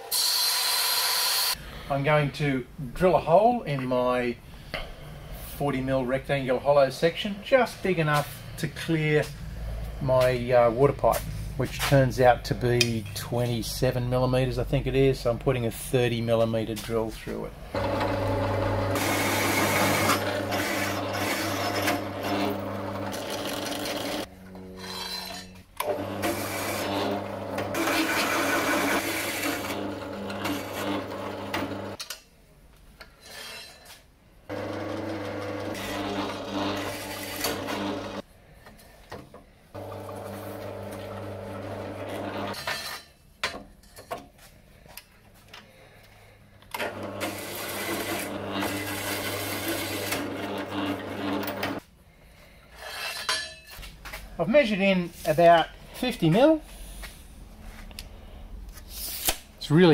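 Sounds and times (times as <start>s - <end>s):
hole saw cutting steel: 0.0s - 1.6s, 17.8s - 32.0s, 34.5s - 38.2s, 46.8s - 51.8s
drill motor humming: 17.7s - 24.3s, 25.8s - 32.0s, 34.5s - 38.2s, 39.8s - 42.6s, 46.8s - 51.8s.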